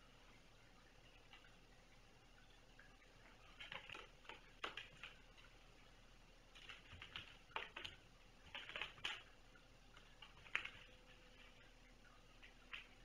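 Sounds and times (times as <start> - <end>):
soft clicks and taps of kittens: 3.2 - 5.2, 6.5 - 11.7, 12.4 - 13.0.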